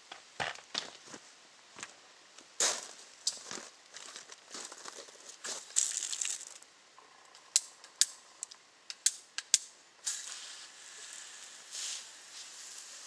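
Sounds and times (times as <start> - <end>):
soft scraping rustle: 10.3 - 13.0.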